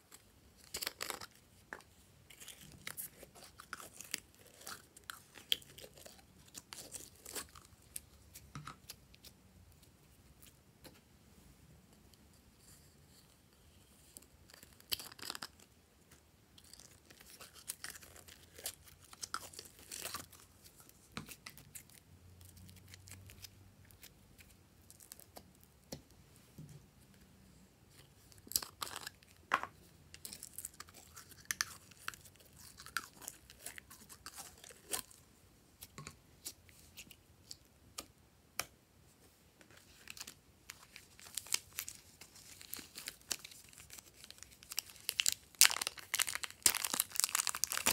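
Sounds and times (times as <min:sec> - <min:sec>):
slime and clay clicks and crackles: 0:40.1 - 0:47.9.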